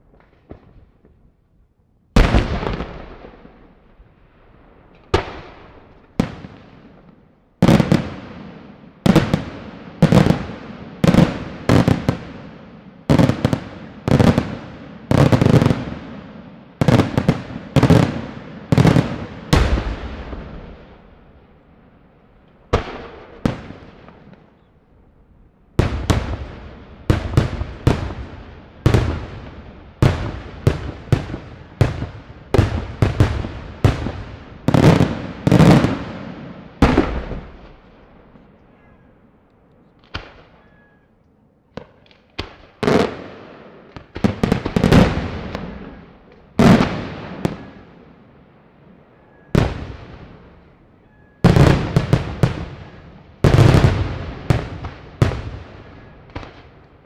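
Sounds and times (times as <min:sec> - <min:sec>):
fireworks bursting in loud bangs: 0:02.2 - 0:03.6, 0:16.8 - 0:21.0, 0:25.8 - 0:37.8, 0:41.8 - 0:46.0, 0:51.4 - 0:56.7.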